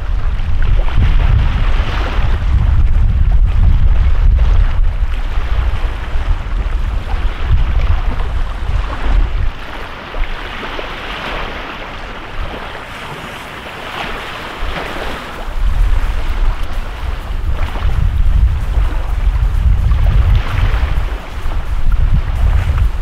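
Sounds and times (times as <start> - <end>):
waves breaking on sandy shore: 0.0 - 23.0
wind buffeting microphone: 0.0 - 23.0.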